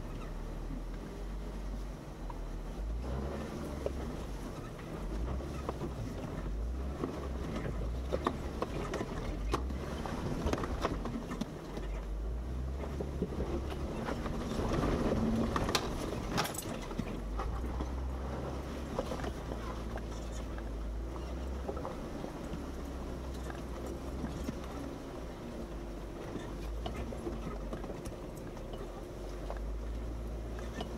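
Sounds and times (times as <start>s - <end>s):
car engine rumbling: 0.0s - 30.9s.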